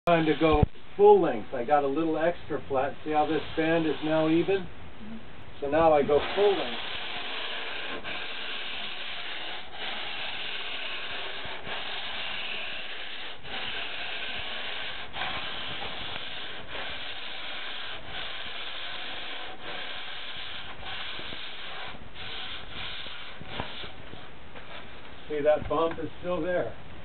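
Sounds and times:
sanding block rasping on foam: 0.1 - 0.7, 2.8 - 4.7, 5.8 - 24.3.

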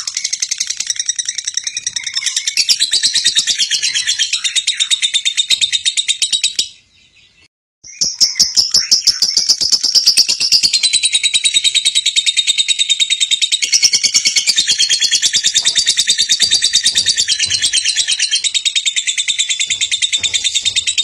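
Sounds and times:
lovebird chirping: 0.0 - 21.0.

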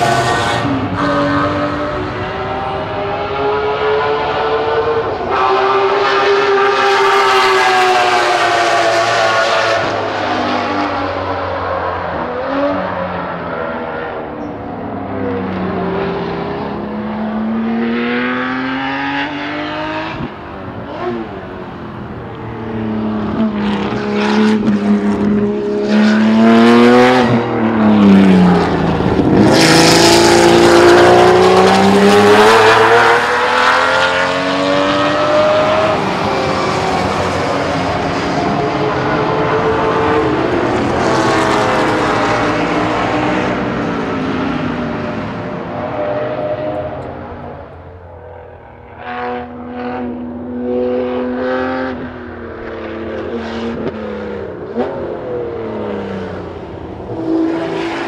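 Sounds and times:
race car engine revving through gears: 15.6 - 21.4, 23.1 - 47.9, 48.6 - 58.0.

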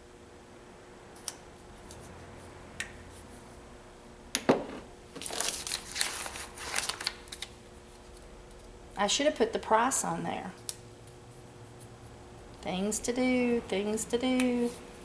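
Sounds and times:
paper crinkling: 5.2 - 8.6.

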